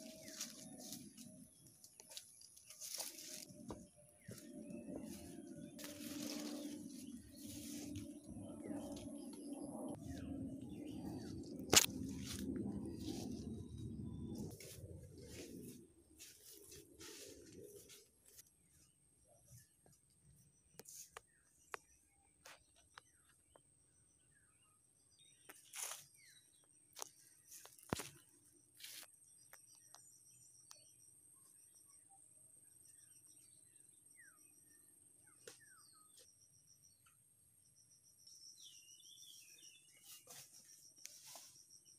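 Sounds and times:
leaves and grass rustling: 0.0 - 1.4, 2.0 - 9.0, 10.0 - 18.4
footsteps on dirt path: 0.0 - 8.8, 14.2 - 18.4
steady high whine: 0.0 - 18.5
small birds chirping: 32.8 - 41.9.

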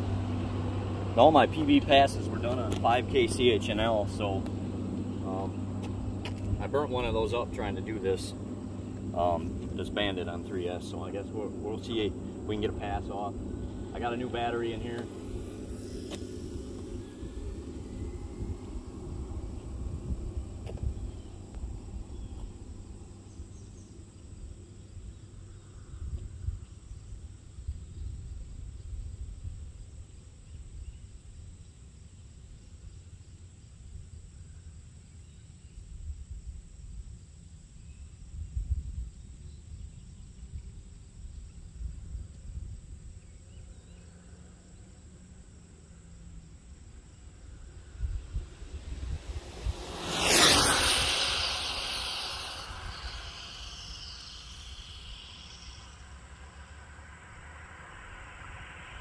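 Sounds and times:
low uneven rumble: 0.0 - 26.8
insects buzzing: 0.0 - 59.0
faint bird chirps: 48.8 - 56.8.

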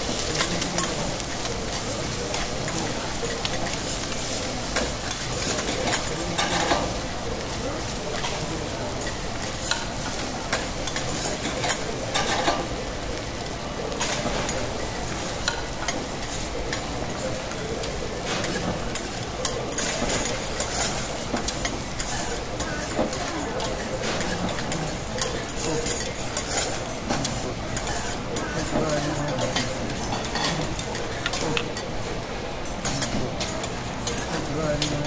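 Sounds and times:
food sizzling on a griddle: 0.0 - 35.0
metal spatulas scraping and clacking: 18.3 - 31.9.

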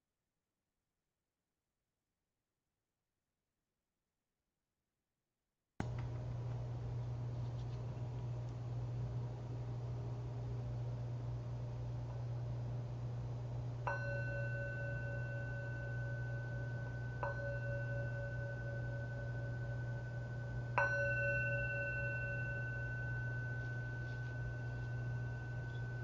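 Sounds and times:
steady low hum: 5.8 - 26.0
meditation bell ringing: 13.7 - 26.0.

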